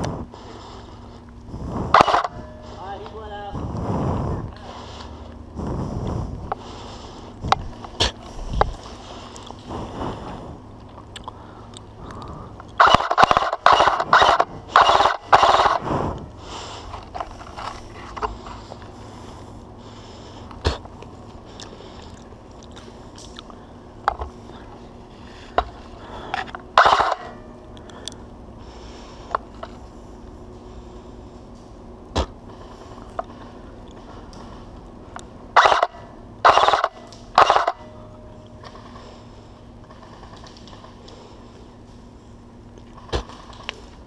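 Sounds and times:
loud crunching strokes: 0:00.0 - 0:44.0
sharp clicks: 0:10.9 - 0:15.8.

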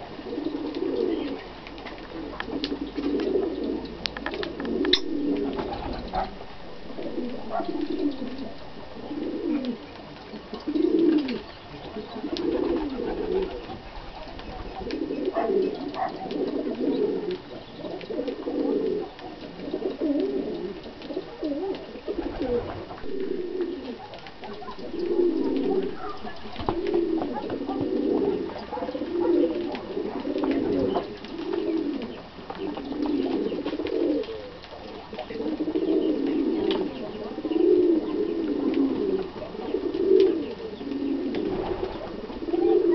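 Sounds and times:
pigeons cooing: 0:00.0 - 0:42.9
birds cracking seed clicks: 0:01.6 - 0:06.1, 0:09.2 - 0:13.7.

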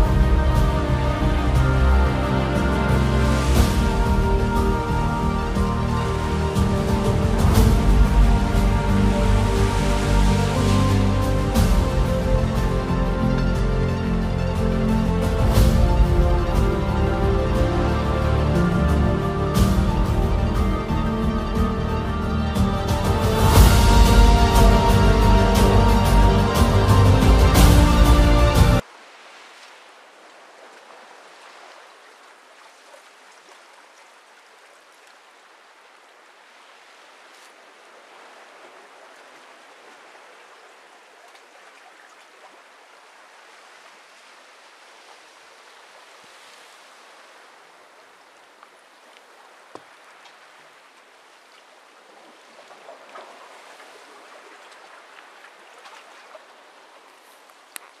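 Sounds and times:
waves lapping on sand: 0:23.3 - 0:58.0.

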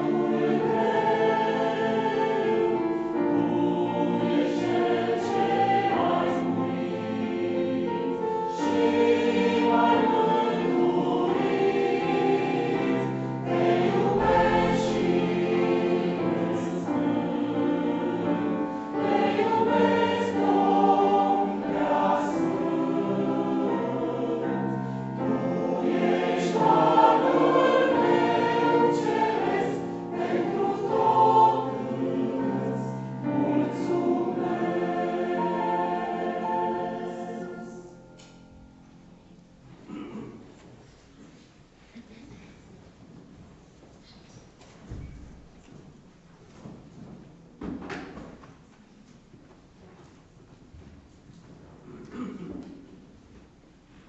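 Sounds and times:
choir singing: 0:00.0 - 0:40.2.

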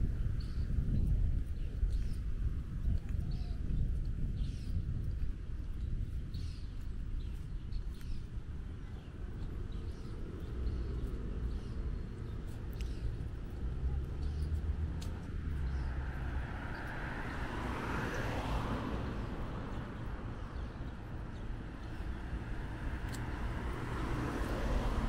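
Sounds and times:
low traffic rumble: 0:00.0 - 0:25.0
small birds chirping: 0:00.2 - 0:25.0
car passing: 0:09.6 - 0:25.0.

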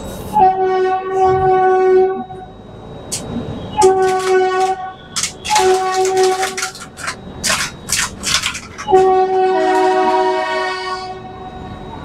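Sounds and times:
locomotive horn blasts: 0:00.3 - 0:02.4, 0:03.7 - 0:06.6, 0:08.9 - 0:11.4.

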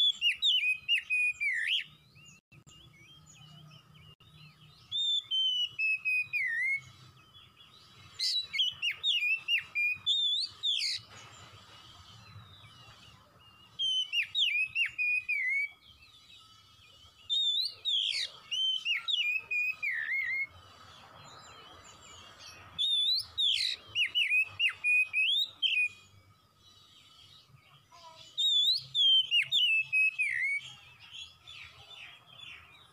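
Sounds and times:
bird singing whistled phrases: 0:00.0 - 0:11.1, 0:12.2 - 0:20.5, 0:21.4 - 0:32.9.

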